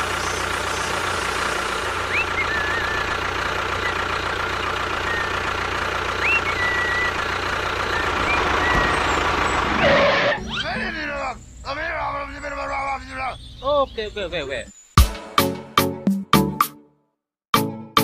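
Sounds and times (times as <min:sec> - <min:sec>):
small vehicle motor running: 0:00.0 - 0:10.4.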